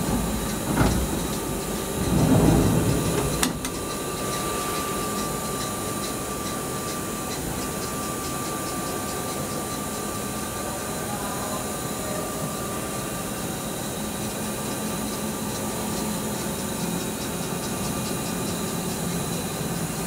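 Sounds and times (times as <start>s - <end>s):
sliding machine door rolling open: 0.0s - 5.0s
machine hum with high whine: 0.0s - 20.0s.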